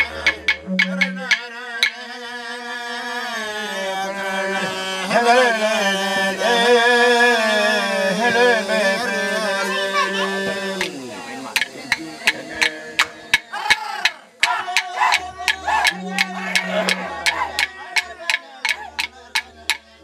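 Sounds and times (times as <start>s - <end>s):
clapsticks striking: 0.0s - 2.0s, 11.6s - 19.8s
didgeridoo drone: 0.0s - 2.1s, 3.6s - 20.0s
man chanting: 0.0s - 20.0s.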